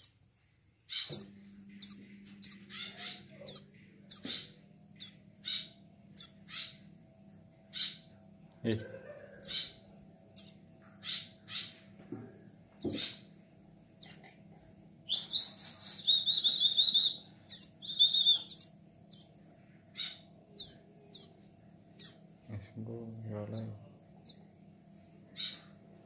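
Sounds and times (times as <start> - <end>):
bird buzzy trill: 0.0 - 0.3, 0.9 - 11.8, 15.0 - 22.4
bird chirps sliding downward: 15.1 - 19.3.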